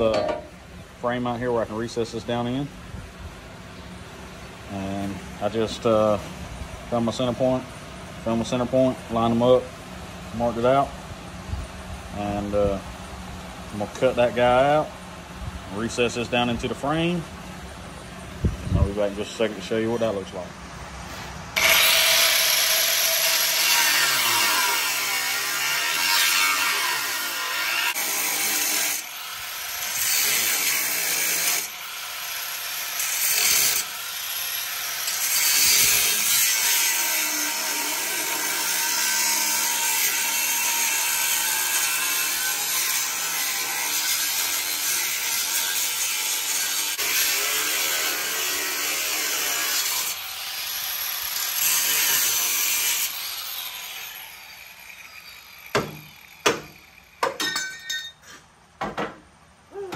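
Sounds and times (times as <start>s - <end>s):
hammer knocks on metal: 0.1s - 0.5s, 58.8s - 59.2s
angle grinder cutting steel: 21.6s - 57.8s.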